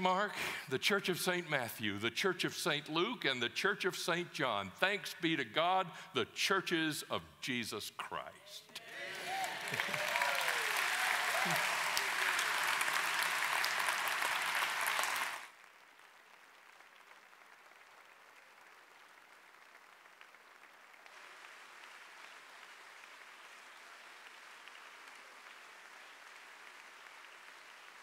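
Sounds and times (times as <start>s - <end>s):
audience applauding: 8.8s - 28.0s.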